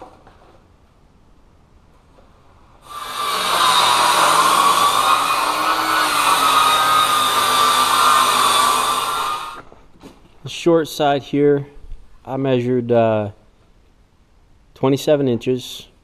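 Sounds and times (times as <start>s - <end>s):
circular saw cutting wood: 2.8s - 9.7s.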